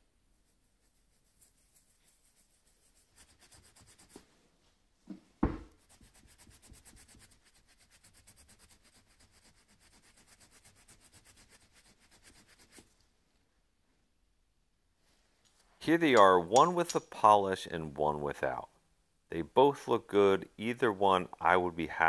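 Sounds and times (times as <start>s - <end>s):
cloth rubbing on brass: 0.4s - 4.4s.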